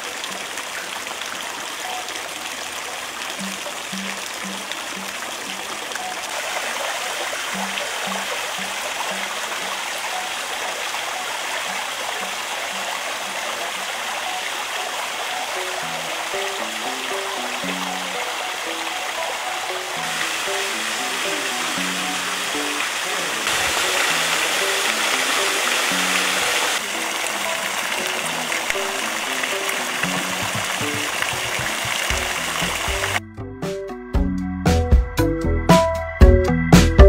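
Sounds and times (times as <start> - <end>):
water rushing and splashing: 0.0 - 33.2
soft background music: 0.1 - 37.0.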